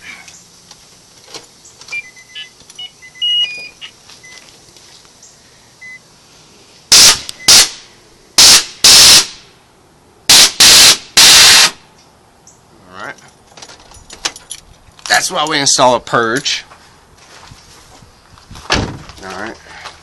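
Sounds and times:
solenoid venting gas blasts: 6.4 - 9.6, 10.2 - 11.9.

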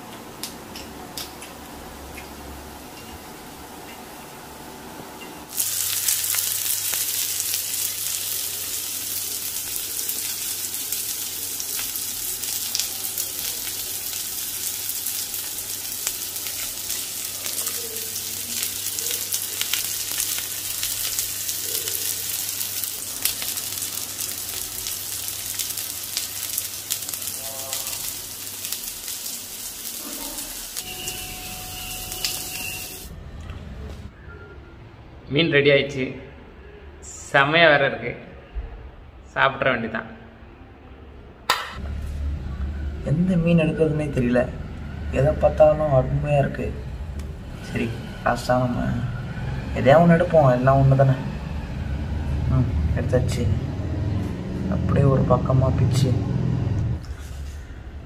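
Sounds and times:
fish sizzling in oil: 5.5 - 33.1.

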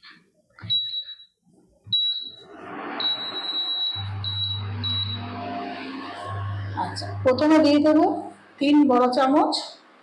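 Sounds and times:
cooling fan whirring: 2.4 - 9.7
low heating hum: 2.4 - 10.0
cooktop beeps: 3.0 - 6.2.

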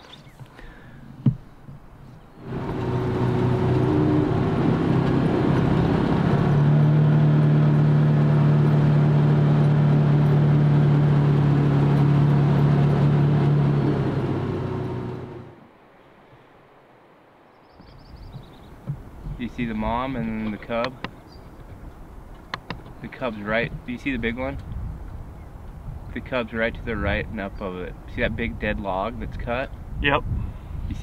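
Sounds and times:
road noise: 0.0 - 28.6
utility vehicle engine drone: 2.4 - 15.7.

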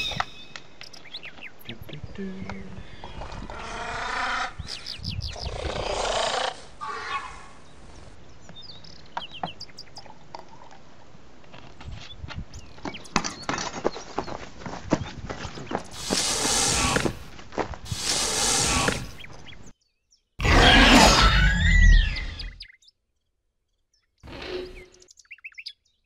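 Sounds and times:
footsteps on stony ground: 8.4 - 18.3
dinosaur growling roars: 20.4 - 22.4.

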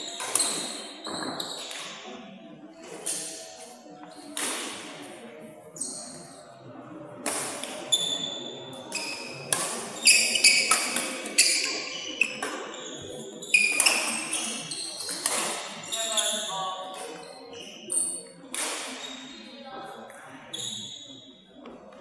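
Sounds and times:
shoes squeaking on court: 0.0 - 1.8, 7.8 - 18.3
rackets hitting shuttlecock: 0.1 - 2.0, 4.4 - 4.9, 7.2 - 7.8, 8.9 - 12.7, 15.0 - 15.8, 18.5 - 19.0.

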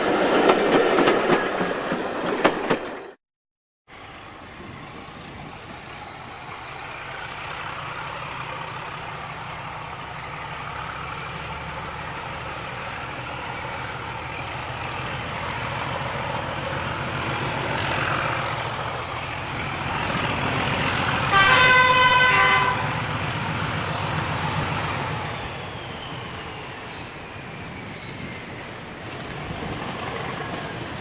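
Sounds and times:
diesel locomotive engine: 3.9 - 31.0
locomotive horn: 21.1 - 23.4.

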